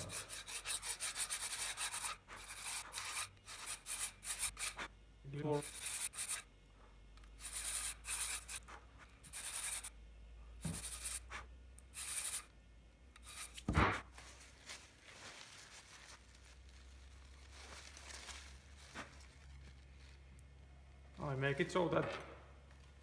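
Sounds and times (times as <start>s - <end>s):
sandpaper scraping: 0.0s - 4.9s, 5.5s - 6.4s, 7.4s - 9.9s, 10.7s - 12.5s, 13.2s - 13.7s
rubbing and handling of part: 7.3s - 9.9s.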